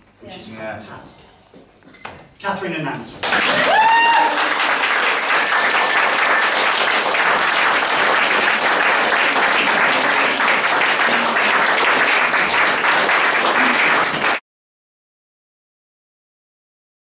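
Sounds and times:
crowd applauding: 0:03.2 - 0:14.4.

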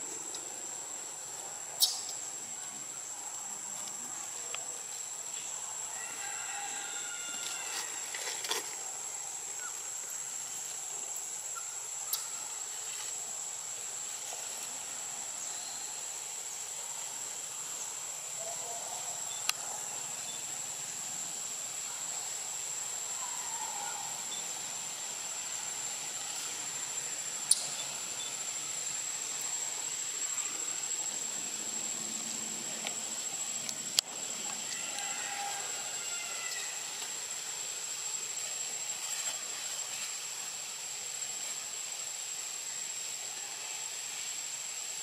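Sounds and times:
high-pitched insect drone: 0:00.0 - 0:16.8, 0:17.4 - 0:45.0
hiss-like background: 0:00.0 - 0:45.0.

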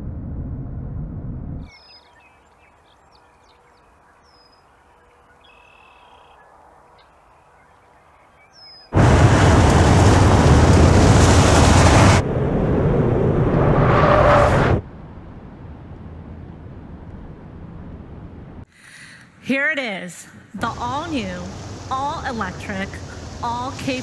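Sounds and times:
loud rumbling boom: 0:00.0 - 0:01.7, 0:09.0 - 0:18.6.

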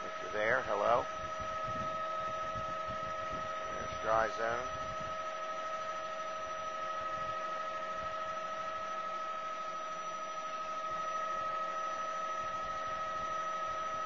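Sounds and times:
helicopter cabin noise: 0:00.0 - 0:05.0.

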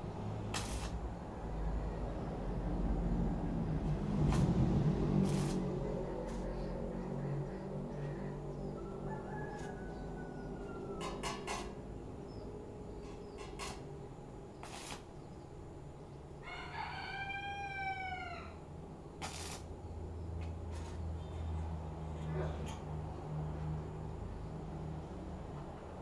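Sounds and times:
rooster crowing: 0:08.6 - 0:11.5, 0:16.4 - 0:18.6.

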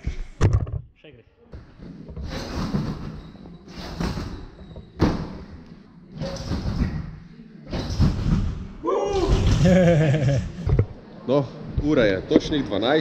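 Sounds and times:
trampoline landing thuds: 0:02.2 - 0:05.5.

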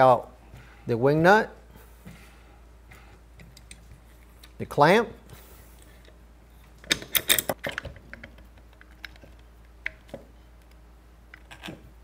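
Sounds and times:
metal tool clicks and clatter: 0:06.8 - 0:09.3.

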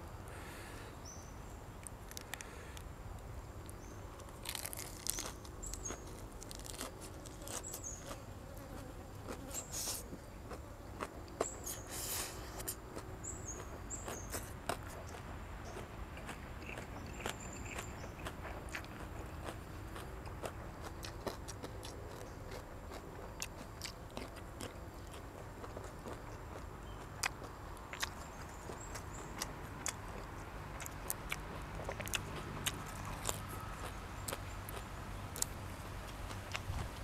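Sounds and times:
crunchy bites: 0:01.8 - 0:02.9, 0:03.7 - 0:37.0
chewing and mouth smacking: 0:04.2 - 0:37.0.

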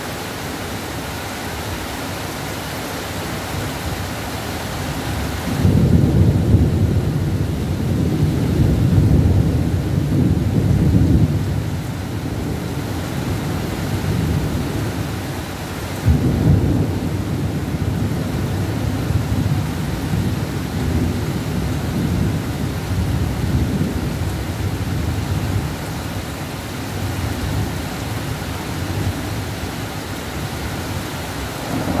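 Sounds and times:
pouring rain: 0:00.0 - 0:32.0
thunder rumbling: 0:04.8 - 0:15.2, 0:16.0 - 0:25.8, 0:26.9 - 0:32.0.

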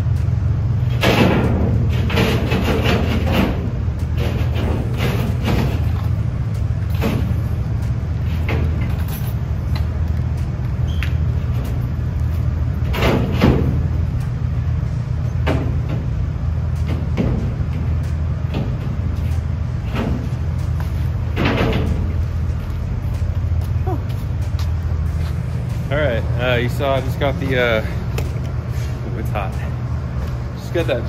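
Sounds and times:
steady low hum: 0:00.0 - 0:31.0
metal plate knocking and scraping: 0:01.0 - 0:06.0.

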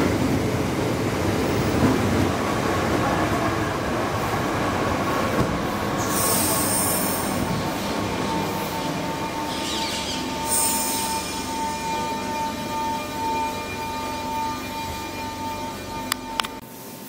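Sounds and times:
train wheels rumbling on rails: 0:00.0 - 0:16.7
train whine: 0:00.0 - 0:17.0
short high-pitched squeals: 0:06.0 - 0:16.4.

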